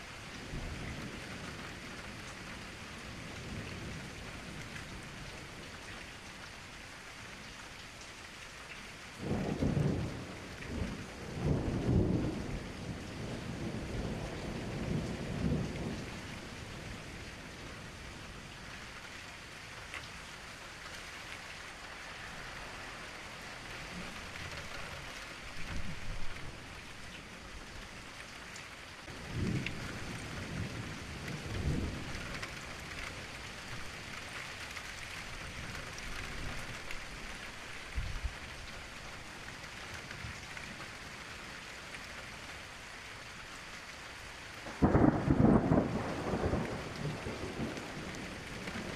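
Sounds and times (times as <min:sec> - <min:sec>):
hissing rain: 0:00.0 - 0:48.9
low thunder rumbles: 0:09.2 - 0:18.4, 0:29.0 - 0:34.4, 0:44.6 - 0:48.9.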